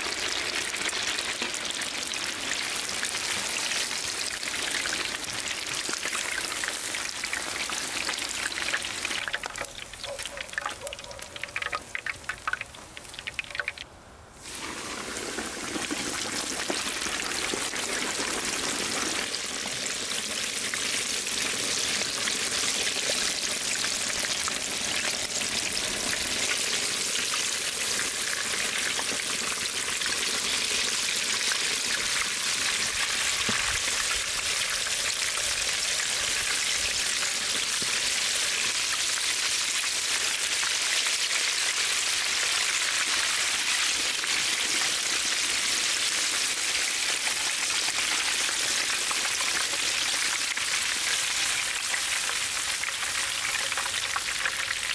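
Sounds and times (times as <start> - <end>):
chicken sizzling in hot oil: 0.0 - 13.8, 14.4 - 54.9.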